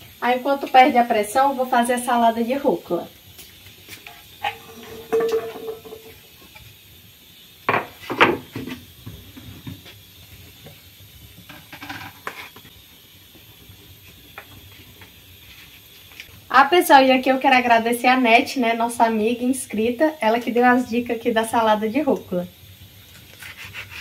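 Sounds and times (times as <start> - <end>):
dishes and utensils clattering: 4.4 - 6.2.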